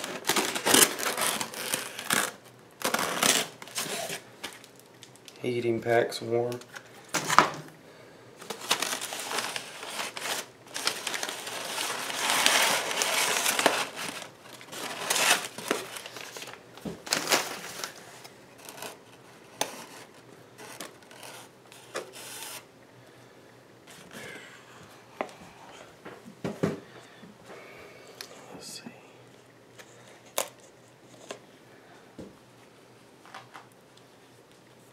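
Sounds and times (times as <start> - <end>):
newspaper rustling and crinkling: 0.0 - 5.2, 8.4 - 21.3.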